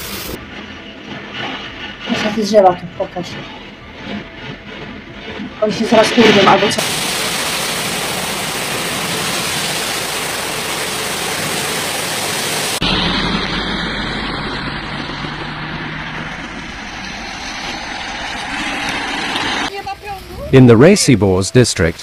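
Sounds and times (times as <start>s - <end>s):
heavy rain: 0.0s - 0.4s, 5.6s - 22.0s
deep low noise: 0.0s - 19.7s
strong wind: 0.0s - 20.9s.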